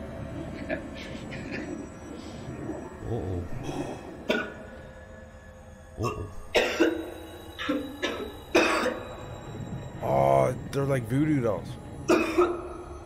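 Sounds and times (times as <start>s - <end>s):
person coughing: 4.3s - 4.7s, 6.0s - 9.0s, 12.1s - 12.7s
throat clearing: 6.0s - 6.9s.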